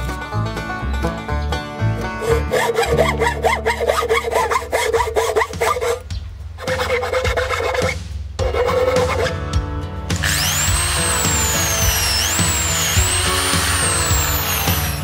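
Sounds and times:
jigsaw cutting wood: 0:10.2 - 0:15.0.

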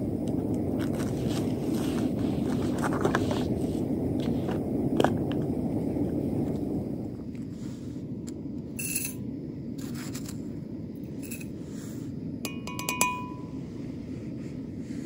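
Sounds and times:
metal clinking on enamel mug: 0:08.8 - 0:09.2, 0:12.4 - 0:13.5.

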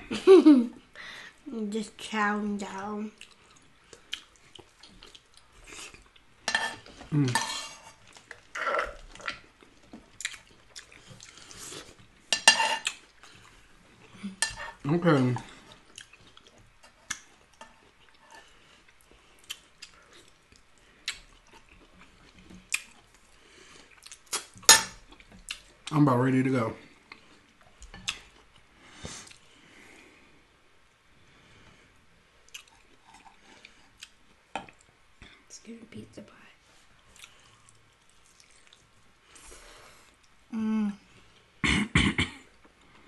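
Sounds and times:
chewing and mouth sounds: 0:03.1 - 0:06.4, 0:08.0 - 0:12.0, 0:15.4 - 0:25.9, 0:32.4 - 0:34.9, 0:37.0 - 0:39.4
spoons scraping ceramic plates: 0:06.5 - 0:08.0, 0:12.3 - 0:12.8.

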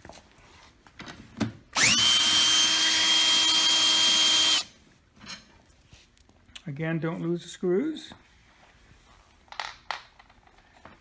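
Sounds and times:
power drill whining: 0:01.8 - 0:04.7.

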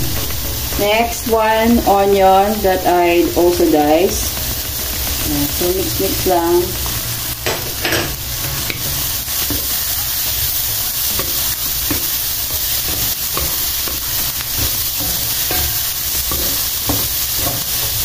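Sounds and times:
food sizzling in a wok: 0:00.0 - 0:18.0.

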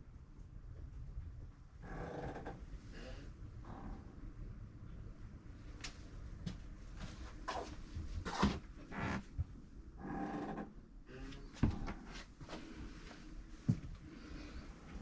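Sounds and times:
knocks and bumps in a cabin: 0:11.5 - 0:12.2.

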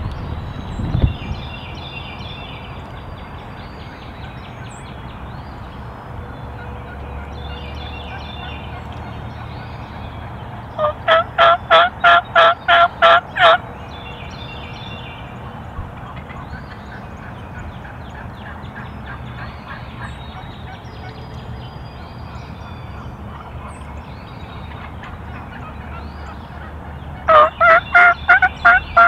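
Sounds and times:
turkey yelping: 0:10.8 - 0:13.6, 0:27.2 - 0:29.0.

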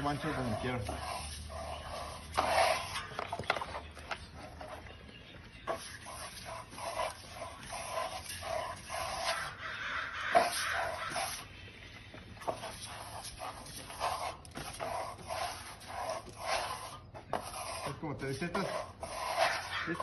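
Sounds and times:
trowel sweeping over plaster: 0:00.0 - 0:03.2, 0:12.4 - 0:20.0.

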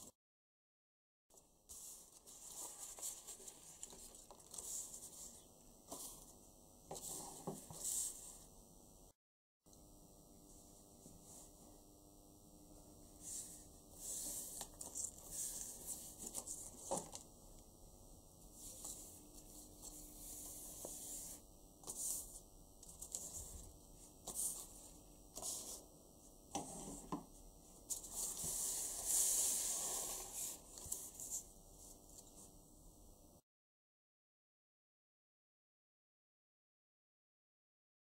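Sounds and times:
paper rustling on wooden table: 0:01.7 - 0:05.3.

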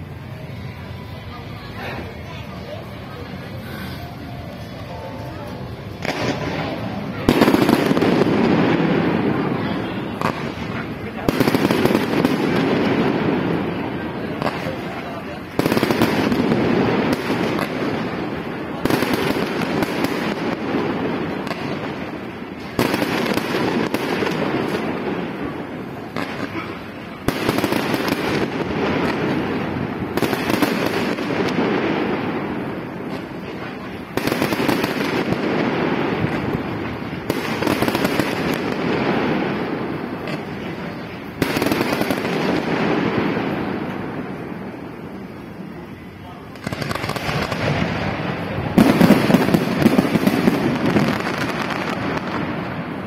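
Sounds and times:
fireworks crackling: 0:00.0 - 0:53.0
loud firework bangs: 0:05.9 - 0:53.0
small firework pops: 0:40.2 - 0:40.6.

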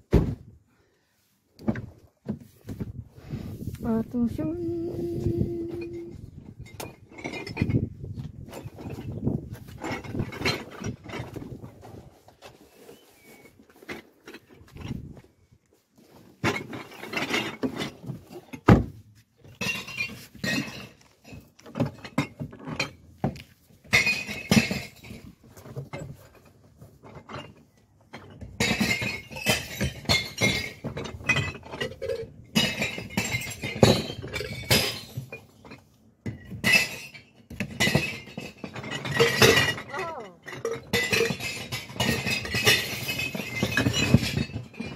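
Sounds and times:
glass bottles clinking: 0:04.6 - 0:11.5, 0:16.4 - 0:18.6, 0:19.5 - 0:23.1, 0:23.8 - 0:26.4, 0:27.1 - 0:44.9
bottles smashing in bins: 0:16.3 - 0:23.0, 0:23.8 - 0:26.2, 0:28.1 - 0:44.9.

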